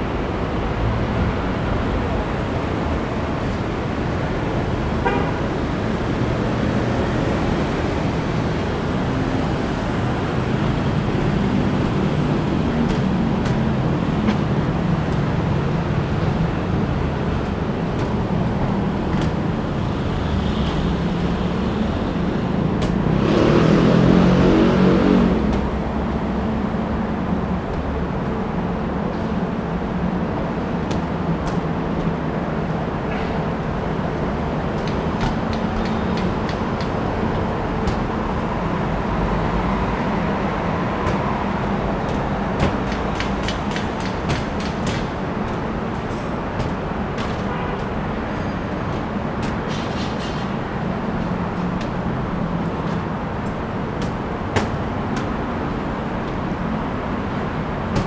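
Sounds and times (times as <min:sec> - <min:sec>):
road traffic: 0:00.0 - 0:58.0
vehicle passing: 0:23.0 - 0:26.2.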